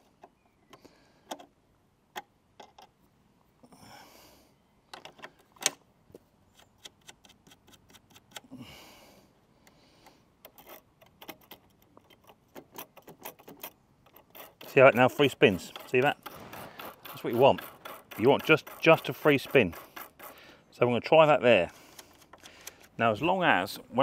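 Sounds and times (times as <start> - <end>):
spanner clicking on metal: 10.4 - 20.4.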